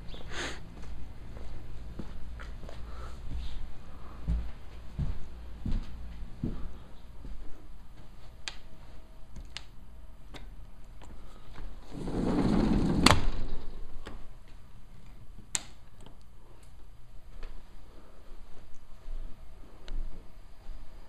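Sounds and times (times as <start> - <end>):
sliding glass door rolling open: 11.8 - 13.8.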